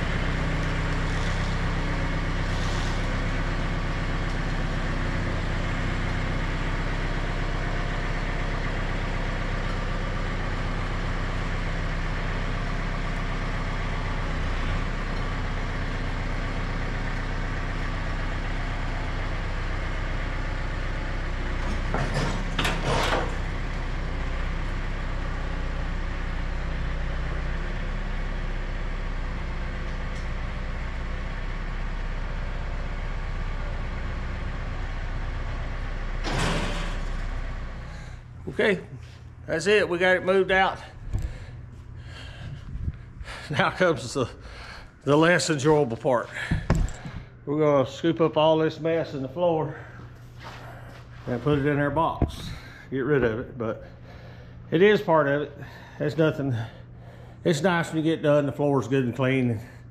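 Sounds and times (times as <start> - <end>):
tractor engine running: 0.0 - 59.9
loud clatter: 36.2 - 37.4.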